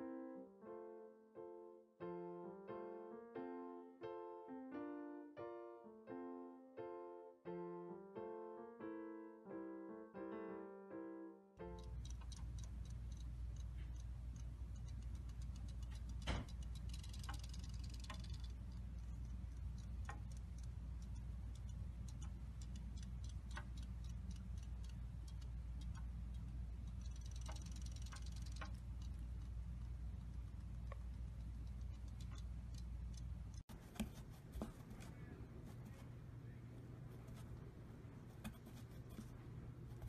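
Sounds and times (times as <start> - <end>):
steady low hum: 11.6 - 40.0.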